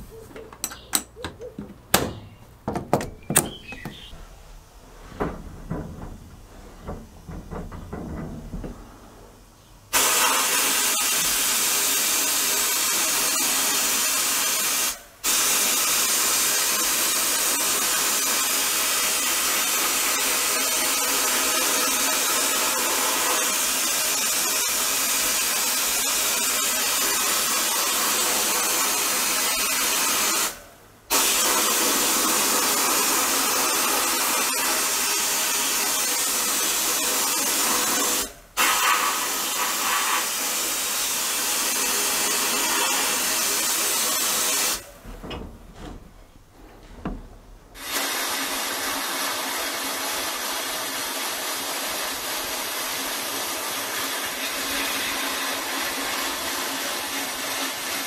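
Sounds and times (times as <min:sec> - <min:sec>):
sandblast nozzle hissing: 0:09.9 - 0:44.9, 0:47.8 - 0:58.0.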